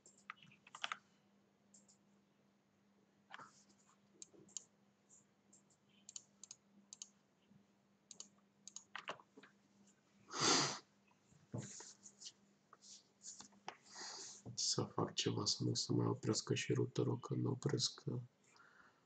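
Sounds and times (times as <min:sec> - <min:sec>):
mouse and keyboard clicks: 0:00.0 - 0:01.0, 0:08.1 - 0:09.2
faint low hum: 0:14.4 - 0:19.0.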